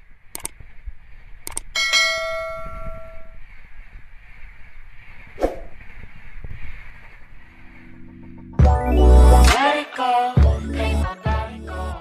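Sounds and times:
sharp click: 0.3 - 0.6, 1.4 - 1.7.

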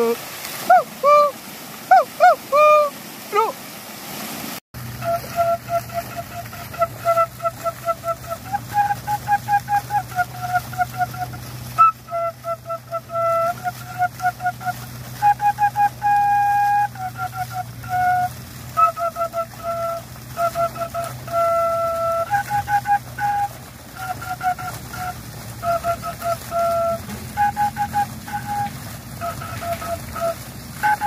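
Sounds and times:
flute-like melody: 0.0 - 3.5, 4.8 - 31.0.

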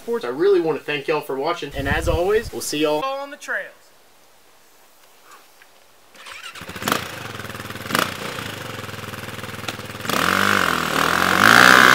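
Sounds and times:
engine sharp cracks: 6.2 - 11.9
dirt bike engine running: 6.3 - 11.9.

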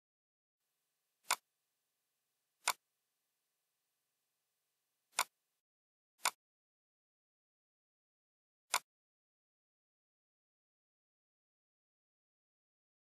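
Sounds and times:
computer mouse clicks: 2.6 - 2.8, 5.1 - 5.4.

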